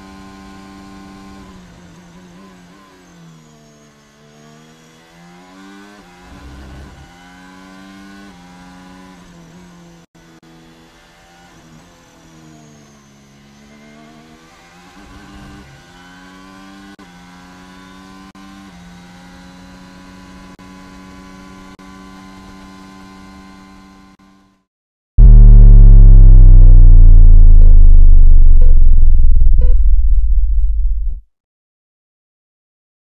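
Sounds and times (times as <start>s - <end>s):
racing car engine revving: 25.2s - 30.0s
deep falling tone sound effect: 25.2s - 31.2s.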